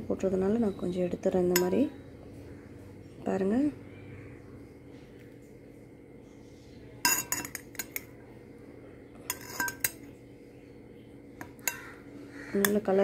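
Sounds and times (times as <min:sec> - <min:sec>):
metal spoon clinking against glass: 0:01.5 - 0:01.8, 0:07.0 - 0:08.1, 0:09.3 - 0:10.1.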